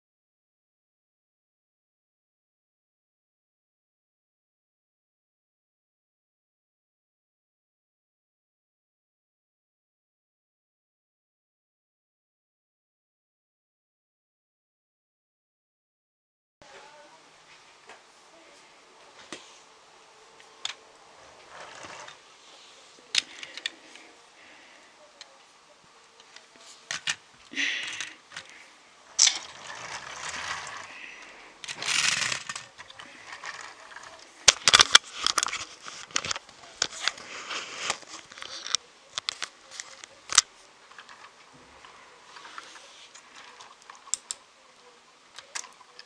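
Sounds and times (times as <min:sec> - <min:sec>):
plastic wheels rolling on wood floor: 0:20.6 - 0:24.5, 0:26.4 - 0:44.3.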